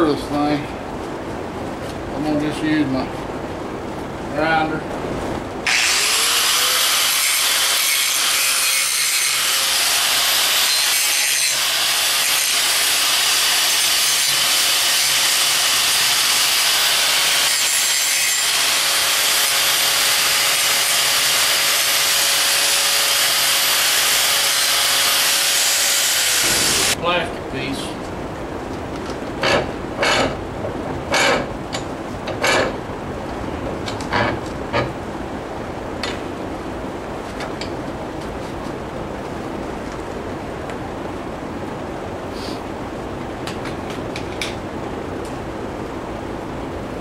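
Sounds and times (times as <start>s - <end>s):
electric grinder whining: 5.7s - 27.0s.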